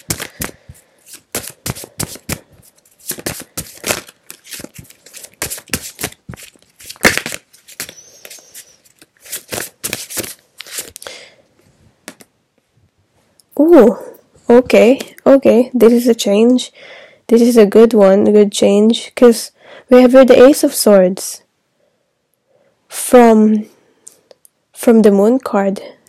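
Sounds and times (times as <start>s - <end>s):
cards being shuffled: 0.0s - 11.2s, 12.0s - 12.3s.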